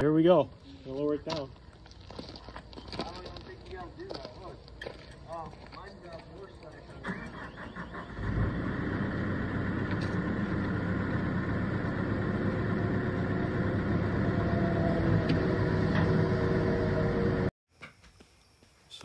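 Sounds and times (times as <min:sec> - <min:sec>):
diesel engine running under load: 0:06.3 - 0:17.5.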